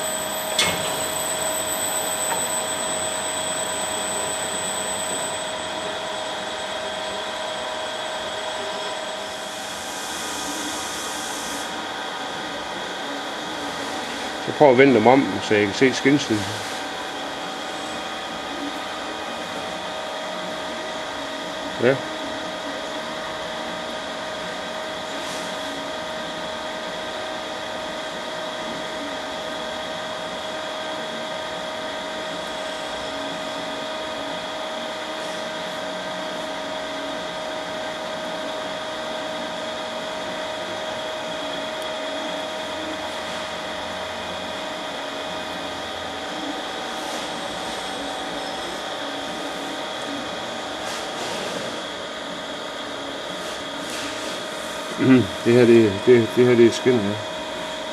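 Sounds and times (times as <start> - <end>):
high steady tones: 0.0 - 7.4
electric machinery humming: 0.0 - 57.9.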